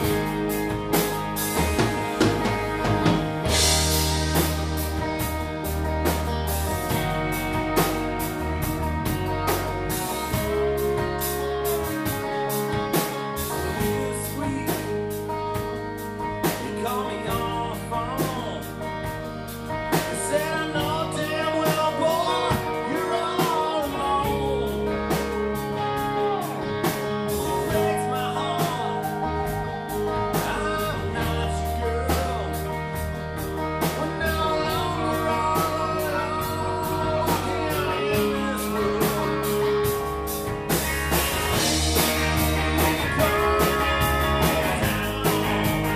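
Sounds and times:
drum kit: 0:00.0 - 0:45.9
electric bass: 0:00.0 - 0:45.9
electric guitar: 0:00.0 - 0:45.9
man singing: 0:13.4 - 0:15.7, 0:16.4 - 0:18.9, 0:19.9 - 0:33.2, 0:33.8 - 0:40.1, 0:42.8 - 0:45.9.

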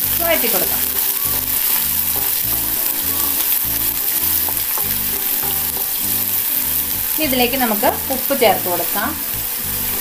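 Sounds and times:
onions sizzling in hot oil: 0:00.0 - 0:10.0
wooden spatula stirring: 0:00.7 - 0:07.9.

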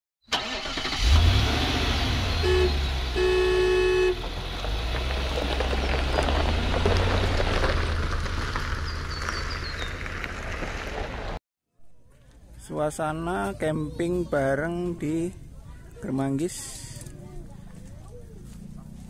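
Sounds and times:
van engine driving by: 0:00.4 - 0:11.4
vehicle horn honking: 0:02.4 - 0:04.2.

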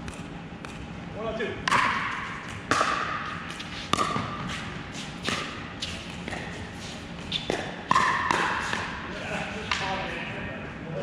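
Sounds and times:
paddles hitting plastic ball: 0:01.7 - 0:03.2, 0:07.5 - 0:09.0.

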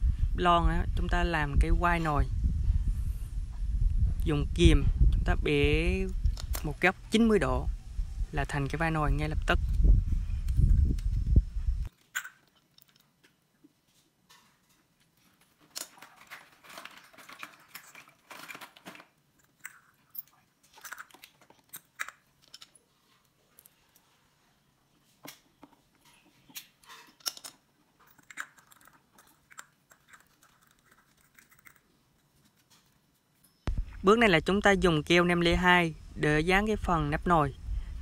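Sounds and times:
aluminium pieces crinkling: 0:11.9 - 0:13.4, 0:14.3 - 0:24.1, 0:25.2 - 0:33.5.

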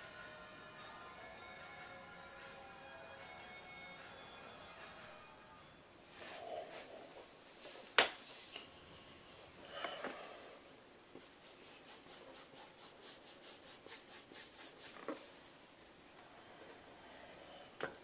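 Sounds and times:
quick rubbing strokes on canvas: 0:11.2 - 0:15.4.

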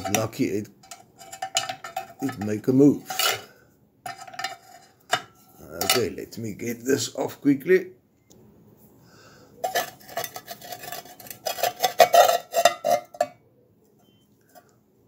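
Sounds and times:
metal scraping and clinking: 0:00.0 - 0:06.4, 0:09.6 - 0:13.4.

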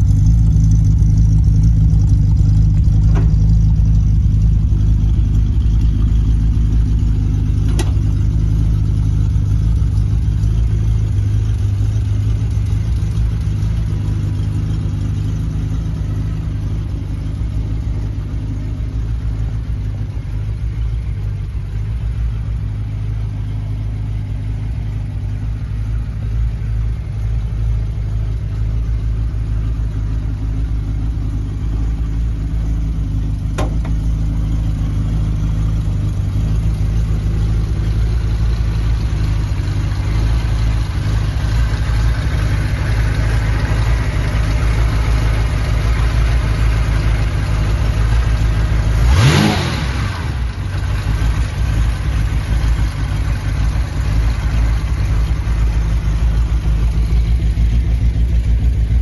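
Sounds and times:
car engine idling: 0:00.0 - 0:59.0
engine throttle blip: 0:07.6 - 0:08.4, 0:31.5 - 0:38.8.

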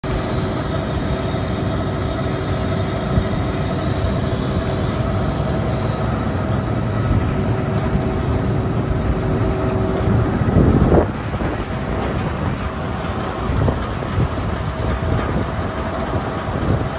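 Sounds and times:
diesel engine rumbling: 0:00.0 - 0:16.9
wind on microphone: 0:06.4 - 0:16.9.

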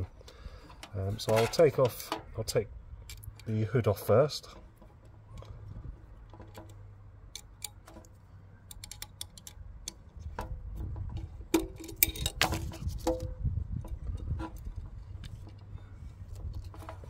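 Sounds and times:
allen key clicking on screws: 0:03.0 - 0:12.5.

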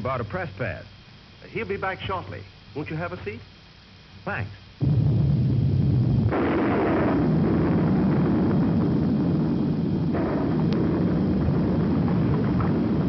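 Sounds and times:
cartoon volcano erupting: 0:04.8 - 0:13.0.

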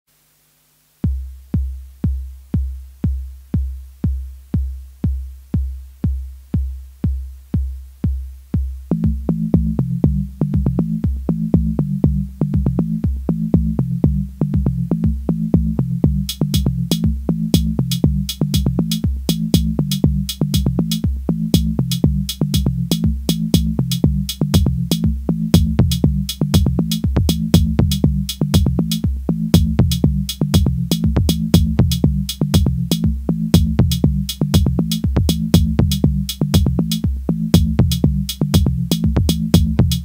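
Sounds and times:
drum machine kick: 0:01.0 - 0:40.0
high ticking percussion: 0:01.0 - 0:40.0
synth bass line: 0:08.9 - 0:40.0.

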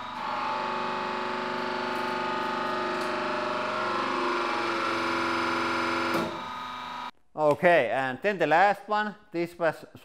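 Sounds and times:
hydraulic press whine: 0:00.0 - 0:07.1.

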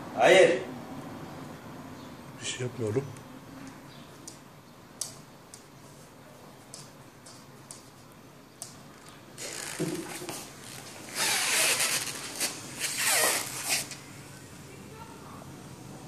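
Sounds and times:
kitten scuffling and rustling: 0:09.4 - 0:14.0.

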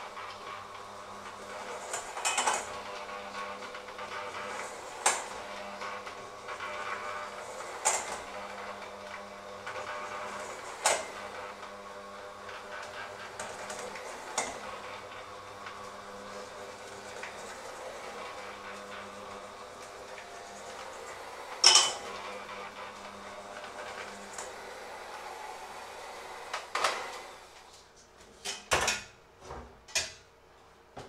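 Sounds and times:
electric hand mixer humming: 0:00.0 - 0:27.7
beaters knocking metal bowl: 0:21.6 - 0:22.0.

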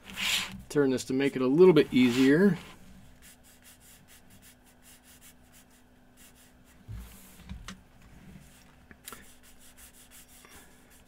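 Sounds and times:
paper rubbing and scratching: 0:00.0 - 0:00.6, 0:01.8 - 0:06.6, 0:09.2 - 0:11.0.

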